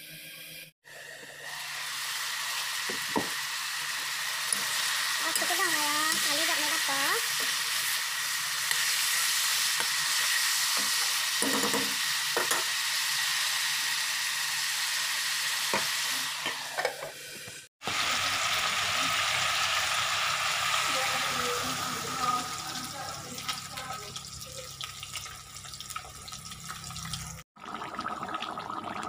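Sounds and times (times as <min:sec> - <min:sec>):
meat sizzling in a wok: 0:01.0 - 0:27.4
knocks against a pan: 0:11.4 - 0:12.7.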